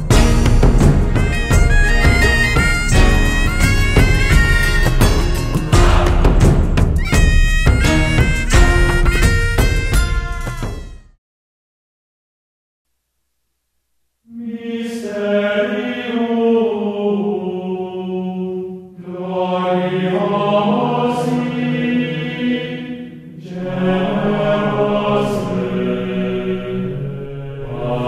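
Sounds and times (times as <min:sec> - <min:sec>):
low chanted singing: 0:05.6 - 0:06.8, 0:14.3 - 0:28.0.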